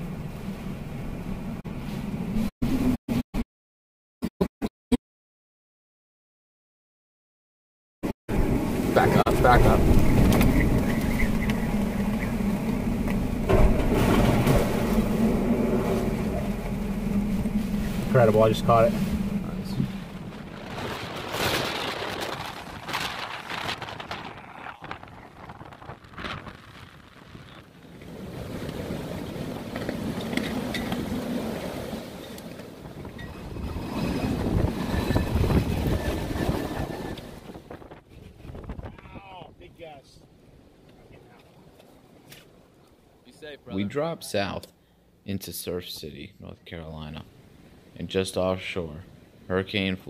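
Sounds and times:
engine low hum: 8.3 - 21.3
strong wind: 8.3 - 41.4
rain: 8.4 - 37.3.

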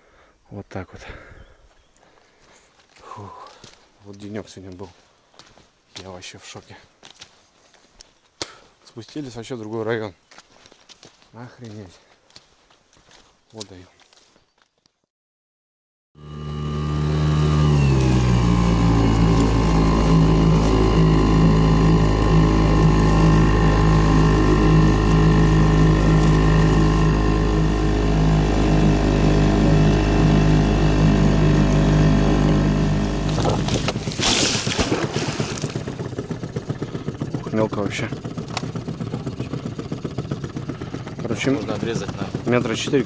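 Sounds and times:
outboard motor running: 16.2 - 43.0.

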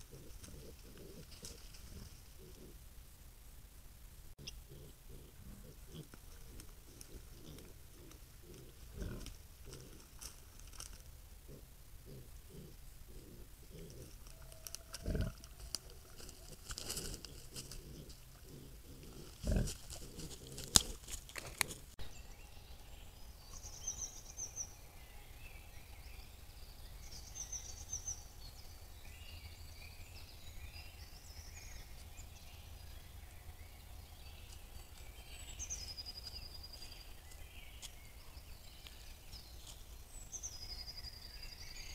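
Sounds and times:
songbirds trilling: 0.0 - 2.8, 4.4 - 10.3, 11.4 - 41.9
wild boar grunting: 0.0 - 2.8, 4.4 - 10.2, 11.4 - 14.2, 15.0 - 22.0
rooting in dry litter: 13.7 - 22.0.

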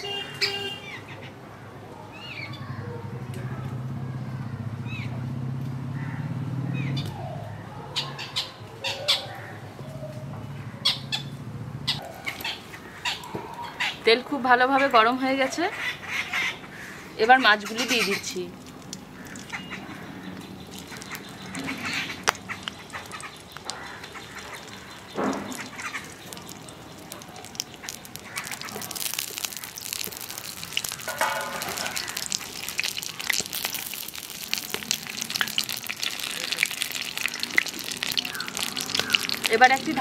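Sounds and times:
fish frying in oil: 20.5 - 40.0.

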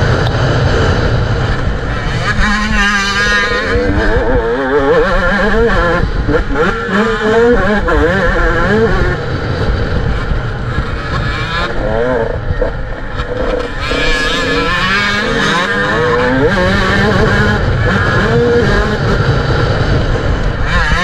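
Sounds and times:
motorcycle engine revving: 0.0 - 21.0
wind rumble on microphone: 0.0 - 21.0.

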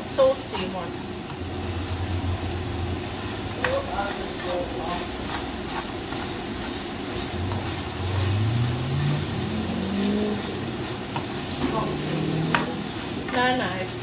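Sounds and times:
meat sizzling in a frying pan: 0.0 - 14.0
low hum rising in pitch: 1.4 - 3.5, 7.4 - 11.0, 11.6 - 13.0
spatula stirring: 3.0 - 14.0.

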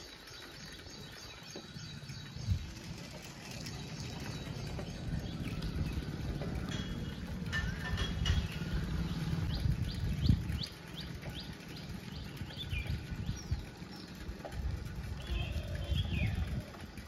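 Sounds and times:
low uneven rumble: 0.6 - 17.0
bird repeating rising chirp: 8.2 - 14.4.

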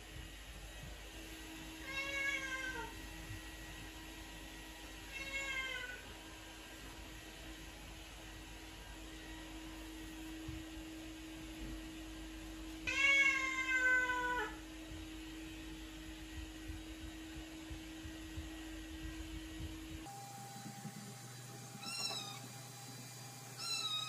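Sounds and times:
cat meowing: 5.1 - 6.0, 12.9 - 14.6, 21.8 - 22.4, 23.6 - 24.0.

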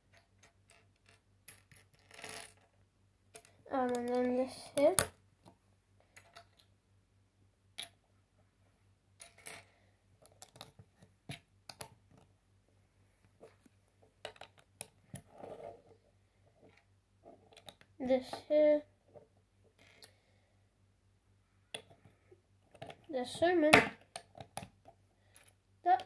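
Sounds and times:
soft handling noise: 8.4 - 20.0.

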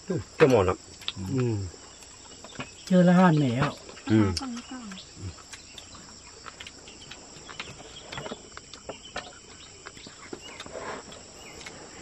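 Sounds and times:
insects chirring: 0.0 - 12.0
clicks and taps of bowls and sticks: 0.2 - 11.8.

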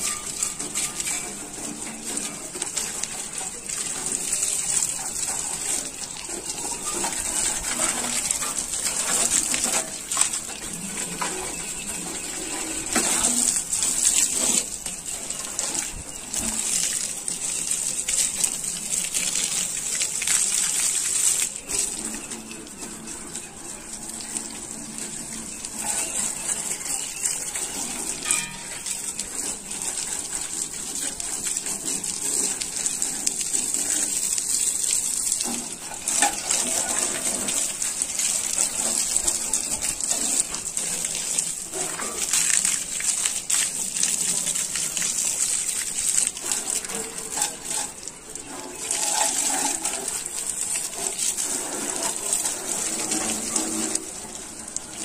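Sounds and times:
hose water spraying and splashing: 0.0 - 55.0.

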